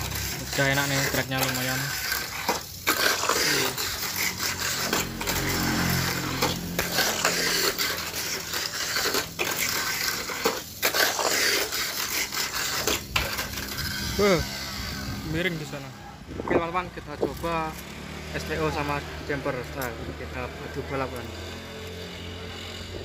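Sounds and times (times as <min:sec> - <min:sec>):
hard plastic scraping and clattering: 0:00.0 - 0:15.3
toy cars rattling on plastic track: 0:00.0 - 0:15.9, 0:18.6 - 0:23.0.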